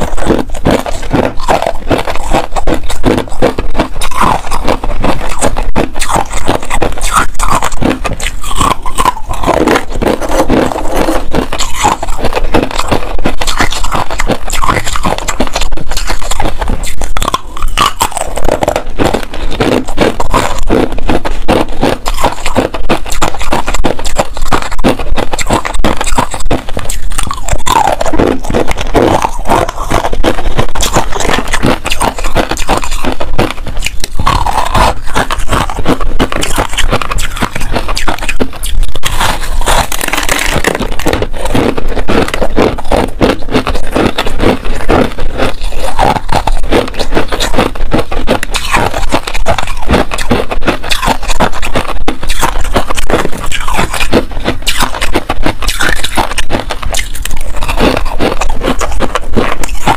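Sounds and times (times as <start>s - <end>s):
ice being chewed: 0.0s - 59.9s.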